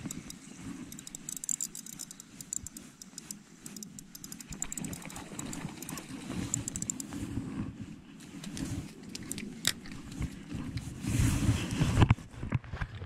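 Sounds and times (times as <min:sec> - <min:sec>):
spinning reel clicking: 0:00.0 - 0:07.1.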